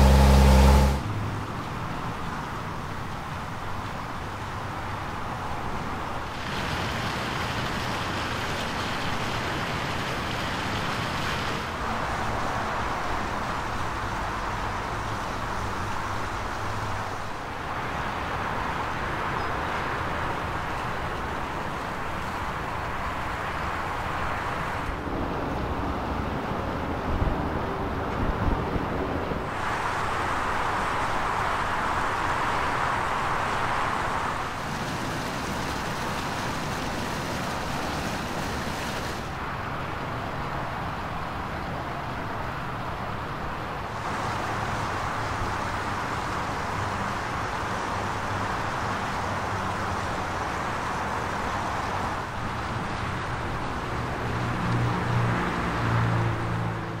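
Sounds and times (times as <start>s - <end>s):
car engine idling: 0.0s - 1.0s.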